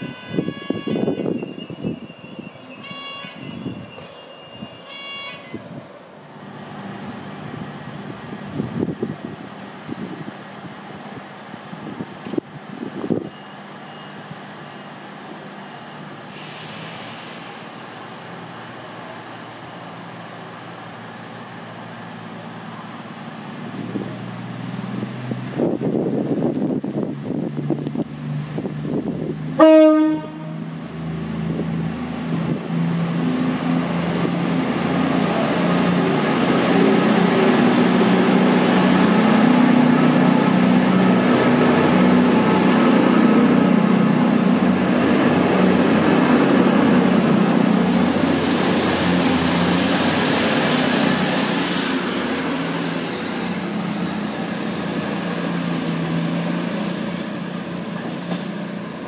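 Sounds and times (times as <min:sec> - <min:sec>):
train horn blast: 0:00.0 - 0:05.6, 0:29.6 - 0:30.7
train engines and wheels rumbling: 0:00.0 - 0:59.0.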